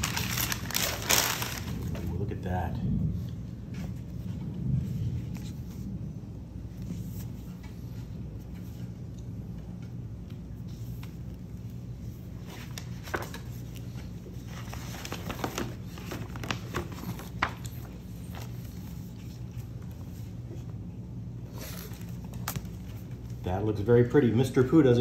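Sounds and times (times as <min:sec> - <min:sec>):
paper and cardboard crinkling: 0:00.0 - 0:02.2, 0:12.2 - 0:19.8
steady low hum: 0:00.0 - 0:25.0.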